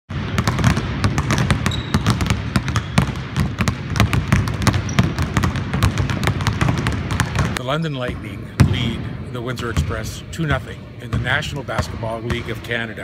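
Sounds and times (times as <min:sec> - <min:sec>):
basketballs bouncing on hardwood: 0:00.1 - 0:08.9, 0:09.7 - 0:10.1, 0:11.1 - 0:12.6.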